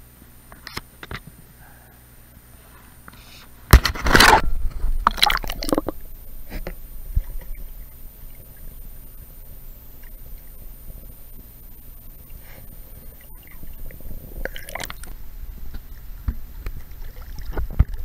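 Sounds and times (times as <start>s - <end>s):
water splash: 3.8s - 7.7s
underwater gurgling: 3.9s - 18.0s.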